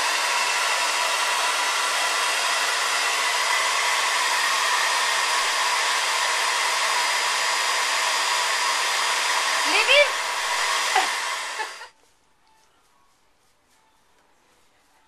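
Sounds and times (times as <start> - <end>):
blow dryer running: 0.0 - 11.9.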